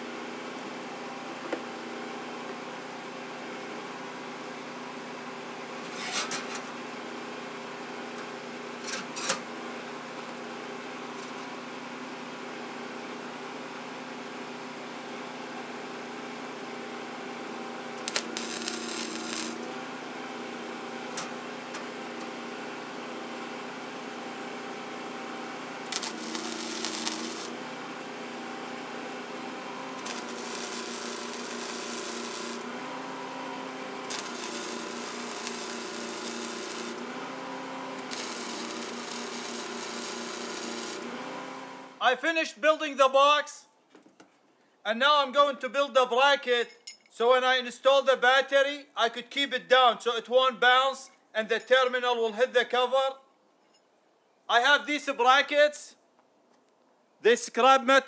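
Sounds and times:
welder electrical hum: 0.0s - 42.1s
weld crackling and sizzling: 18.0s - 19.8s, 25.8s - 27.6s, 29.8s - 32.9s, 33.6s - 41.6s.

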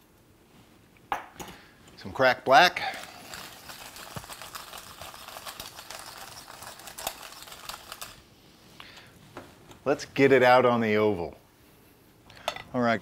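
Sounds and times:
pepper mill grinding: 2.8s - 8.2s.

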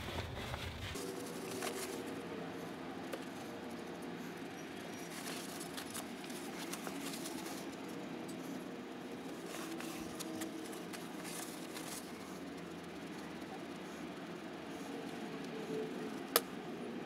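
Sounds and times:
paper towel rustling and scratching: 0.0s - 2.2s, 5.1s - 7.8s, 9.2s - 12.4s
low background hum: 0.0s - 17.0s.

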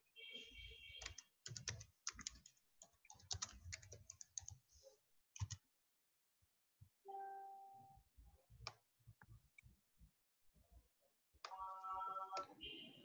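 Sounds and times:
typing on keyboard: 1.0s - 4.6s, 5.4s - 5.6s.

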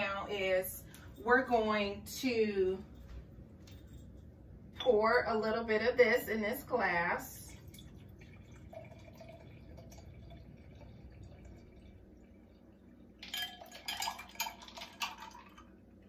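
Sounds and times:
liquid trickling into glass: 7.5s - 15.8s
ice cubes clinking against glass: 13.2s - 15.4s.

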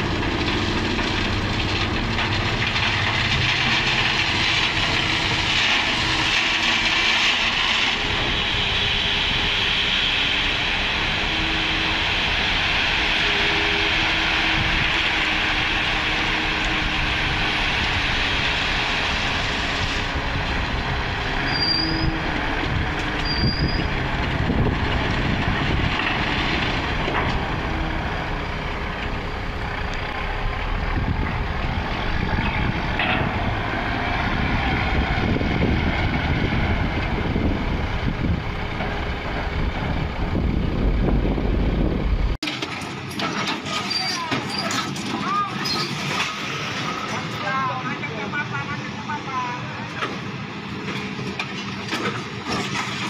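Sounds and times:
gravel pouring hiss: 0.0s - 21.8s
diesel truck engine running: 0.0s - 43.1s.

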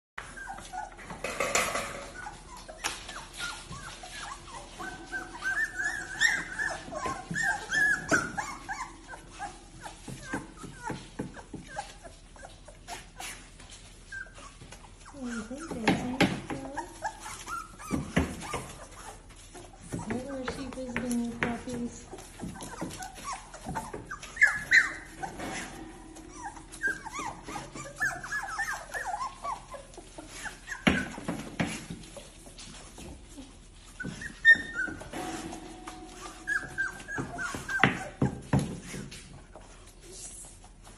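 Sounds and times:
puppies crying: 0.2s - 40.9s.

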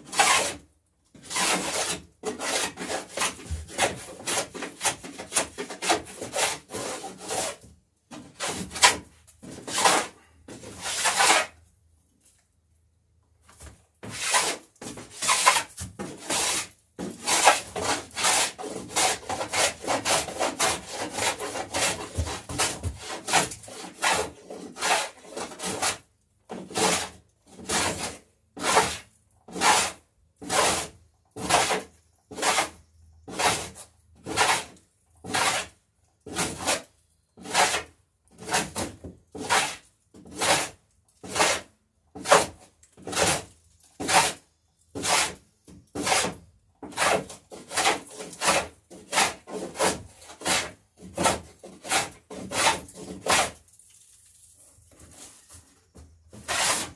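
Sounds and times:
hand plane shaving wood: 0.0s - 0.6s, 1.2s - 11.6s, 14.0s - 53.6s, 54.9s - 56.9s.

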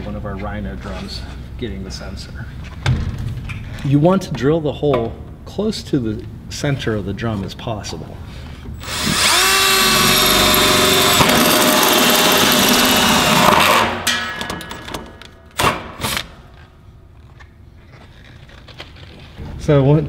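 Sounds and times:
drill hole saw cutting metal: 8.8s - 14.0s.

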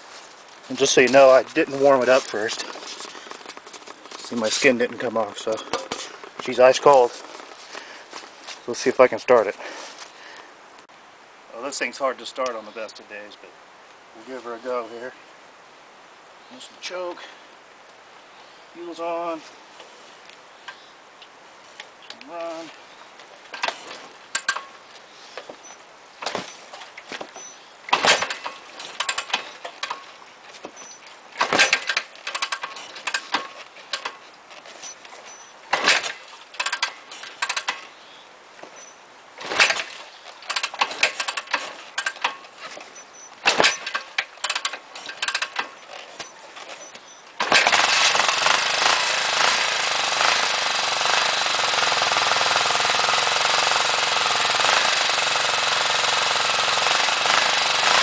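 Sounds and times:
motorcycle kick-start clatter: 0.7s - 7.9s, 23.5s - 24.8s, 25.4s - 37.9s, 38.6s - 58.0s
motorcycle engine running: 0.7s - 8.2s, 47.5s - 58.0s.

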